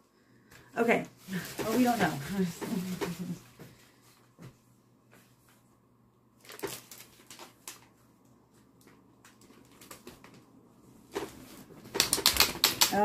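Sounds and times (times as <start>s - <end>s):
stroller frame clicks and rustles: 11.1s - 13.0s.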